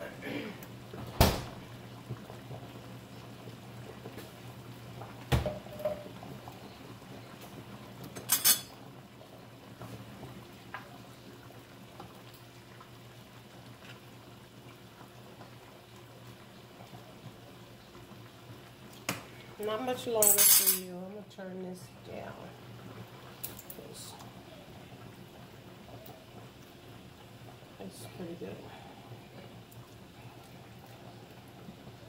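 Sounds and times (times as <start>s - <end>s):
low steady hum: 0.0s - 32.0s
cookware knocking and clinking: 5.3s - 6.1s.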